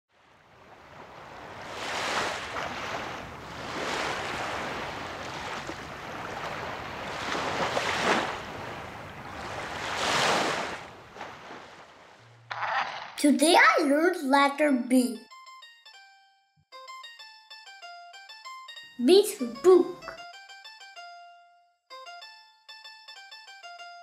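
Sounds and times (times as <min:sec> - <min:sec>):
sea waves washing in: 0:00.1 - 0:12.7.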